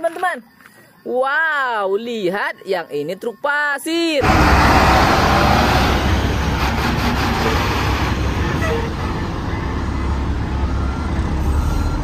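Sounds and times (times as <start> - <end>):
diesel truck engine rumbling: 4.2 - 12.0
tyres on dirt road: 4.2 - 12.0.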